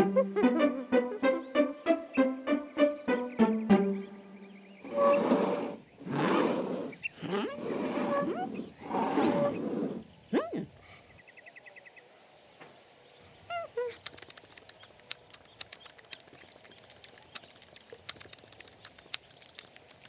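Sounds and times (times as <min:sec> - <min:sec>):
pet food crunching: 0:13.8 - 0:20.0.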